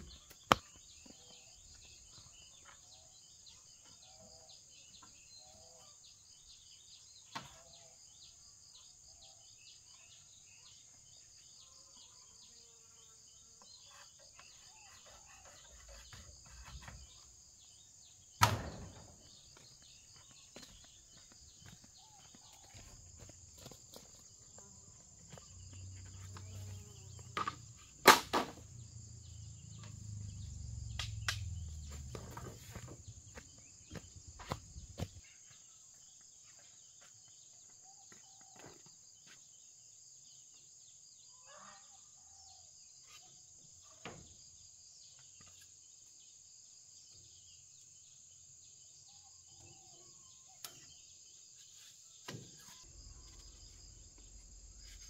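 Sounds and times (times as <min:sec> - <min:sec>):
sharp knocks: 0:18.4 - 0:19.3
insect chirring: 0:52.8 - 0:55.0.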